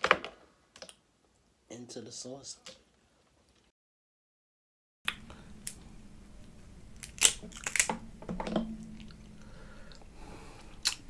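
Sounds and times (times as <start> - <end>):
crab shell cracking: 5.1 - 5.8, 7.0 - 8.0.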